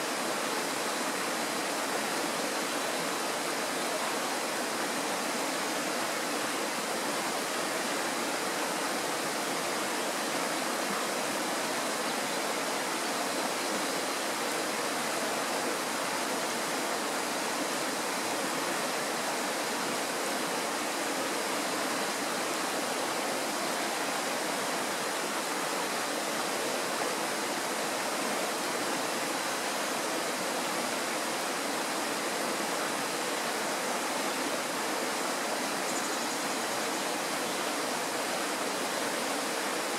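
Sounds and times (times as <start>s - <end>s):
stream flowing water: 0.0s - 39.9s.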